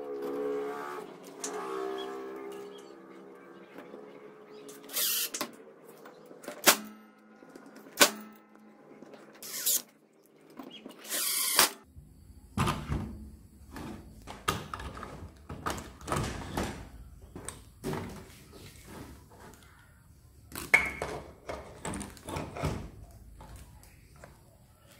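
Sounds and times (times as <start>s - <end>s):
cordless drill driving screws: 4.7s - 5.4s, 9.4s - 9.8s, 11.0s - 11.8s
knocks and clatter of parts: 12.5s - 19.9s, 20.5s - 24.4s.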